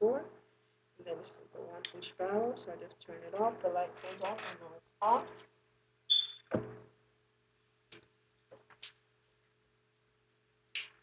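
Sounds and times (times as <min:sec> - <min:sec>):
faint steady hum: 0:00.0 - 0:10.7
soft thump: 0:06.5 - 0:06.8.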